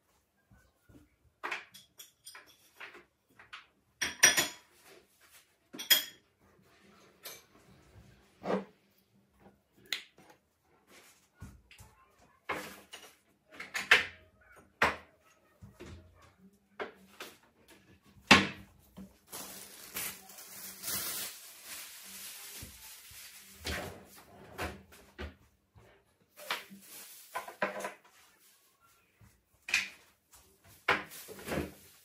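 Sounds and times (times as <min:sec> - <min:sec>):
plastic bag rustling: 0:19.0 - 0:24.3, 0:26.3 - 0:28.7, 0:30.7 - 0:32.0.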